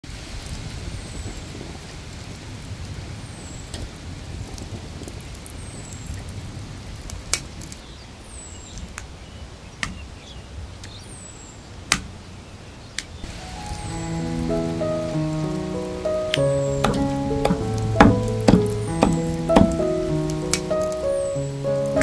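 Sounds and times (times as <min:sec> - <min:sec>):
high falling chirp: 0:13.2 - 0:22.0.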